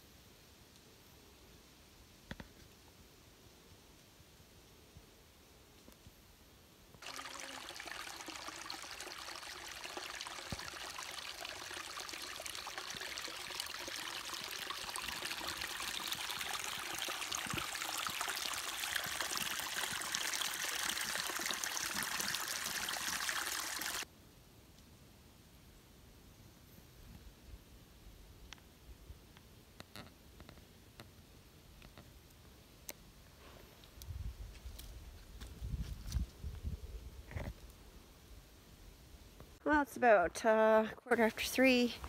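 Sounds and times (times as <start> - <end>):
stream pouring into hole: 7.0 - 24.0.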